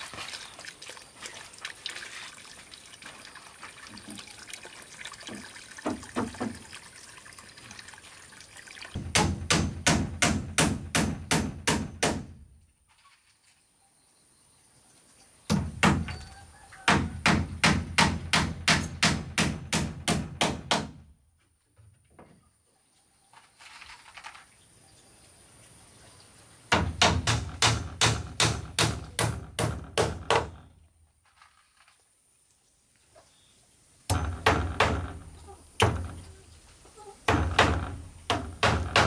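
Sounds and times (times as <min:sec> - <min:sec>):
hammer striking wooden beam: 0:09.0 - 0:12.4, 0:15.5 - 0:16.2, 0:16.9 - 0:21.1, 0:26.7 - 0:30.7, 0:34.1 - 0:36.2, 0:37.3 - 0:39.0.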